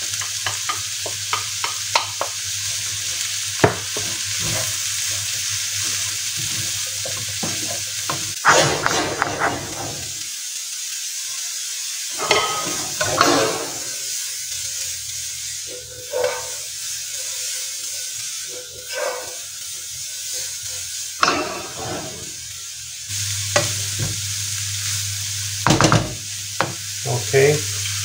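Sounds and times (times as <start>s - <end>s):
vegetables sizzling in a frying pan: 0.0s - 28.0s
wooden spoon scraping a pan: 5.8s - 10.0s, 15.7s - 16.7s, 18.5s - 19.4s.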